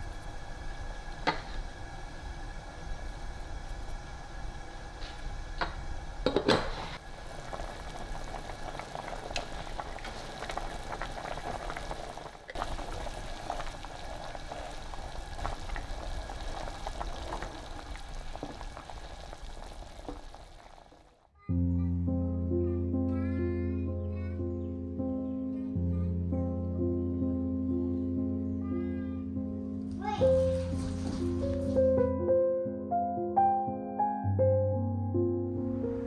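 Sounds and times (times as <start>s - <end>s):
soup bubbling in a pot: 0.0s - 21.3s.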